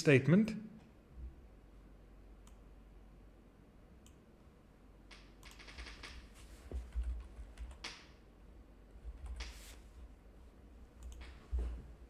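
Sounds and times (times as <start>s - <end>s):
computer mouse clicks: 5.1s - 6.3s, 7.0s - 8.2s, 9.2s - 9.8s, 11.0s - 11.4s.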